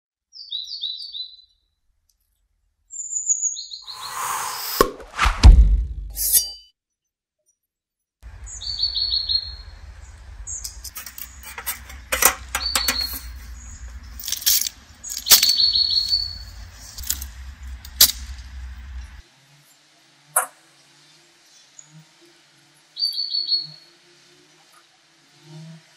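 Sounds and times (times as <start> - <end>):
small birds chirping: 0.3 - 1.7, 8.3 - 19.9, 22.8 - 24.9
low rumble: 5.0 - 6.2, 8.3 - 19.2.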